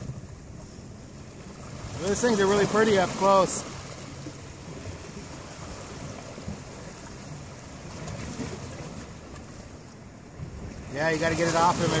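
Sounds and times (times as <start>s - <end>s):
surf breaking on rocks: 10.8s - 12.0s.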